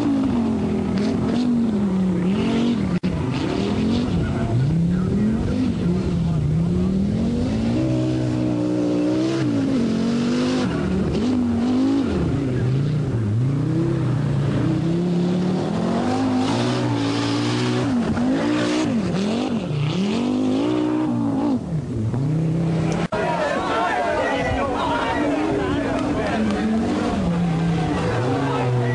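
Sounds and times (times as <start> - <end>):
rally car engine revving: 0.0 - 23.4, 24.7 - 28.9.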